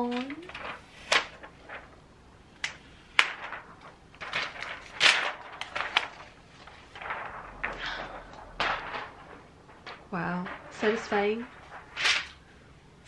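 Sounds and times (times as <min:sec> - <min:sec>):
plastic film crackling and rustling: 0:00.0 - 0:12.8
plastic film sharp snaps: 0:02.6 - 0:06.4.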